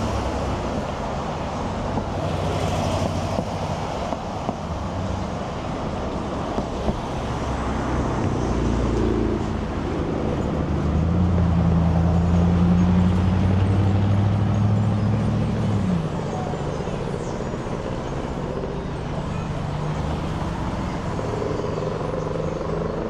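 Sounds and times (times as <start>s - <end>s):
traffic hum: 0.0s - 23.0s
vehicle engine running close: 0.0s - 23.0s.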